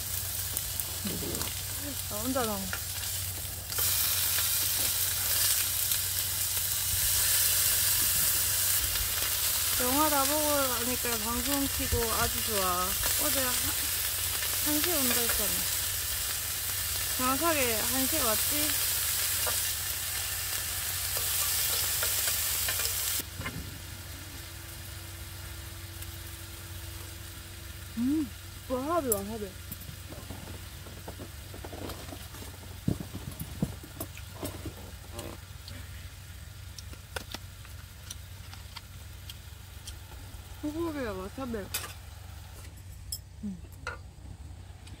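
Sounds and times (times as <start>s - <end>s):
steaks sizzling on grill pan: 0.0s - 32.0s.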